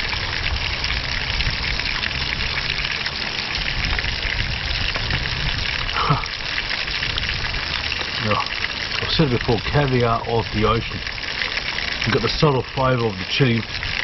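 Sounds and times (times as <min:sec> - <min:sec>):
wind rumble on microphone: 0:00.0 - 0:02.9, 0:03.5 - 0:06.2, 0:06.8 - 0:07.9, 0:10.4 - 0:11.2, 0:13.6 - 0:14.0
fish sizzling in oil: 0:00.0 - 0:14.0.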